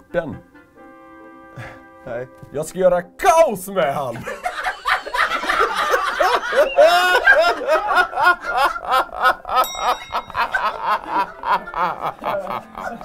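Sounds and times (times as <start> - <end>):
man laughing hard: 4.2 - 13.0.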